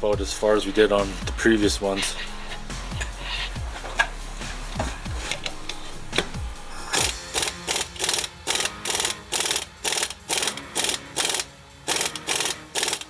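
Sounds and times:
ratchet wrench clicking: 6.9s - 13.0s.

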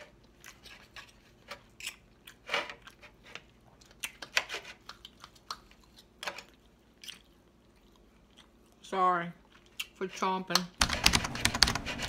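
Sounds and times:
person chewing food: 0.0s - 8.8s, 9.4s - 10.0s.

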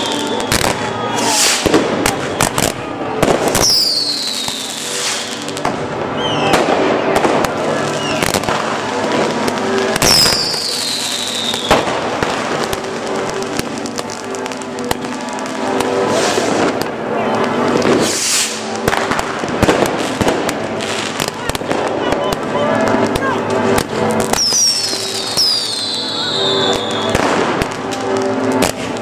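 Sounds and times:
fireworks bangs and crackles: 0.0s - 29.0s
firework whistles falling in pitch: 24.4s - 27.2s.

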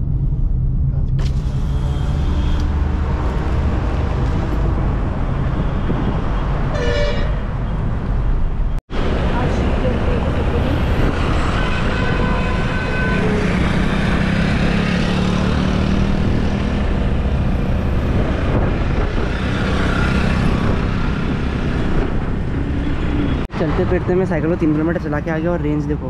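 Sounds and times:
road traffic noise: 0.0s - 26.0s
scooters and motorbikes: 9.0s - 24.0s.

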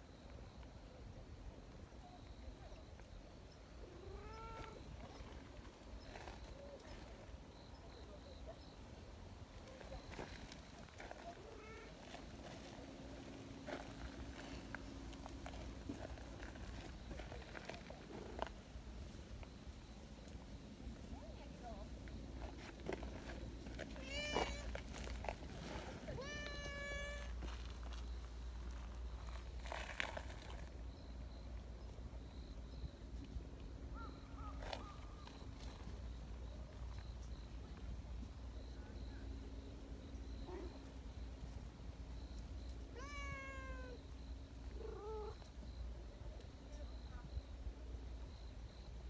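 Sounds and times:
cat meowing faintly: 3.8s - 5.1s, 11.1s - 12.1s, 23.9s - 24.8s, 26.1s - 27.5s, 42.9s - 44.1s, 44.7s - 45.4s.

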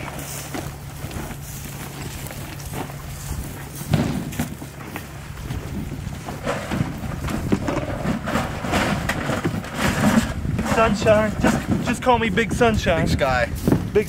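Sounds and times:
bags rustling and clattering: 0.0s - 12.2s
wind on microphone: 5.3s - 14.0s.

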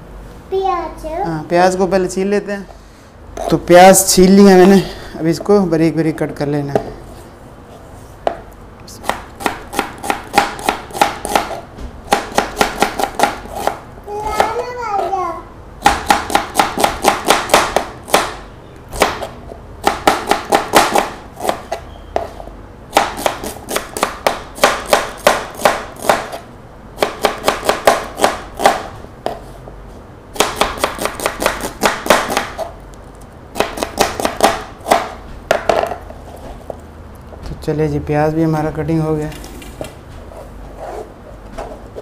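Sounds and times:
knife chopping on cutting board: 9.0s - 14.6s, 15.8s - 18.4s, 19.0s - 26.4s, 27.0s - 29.4s, 30.3s - 32.7s, 33.5s - 36.0s.

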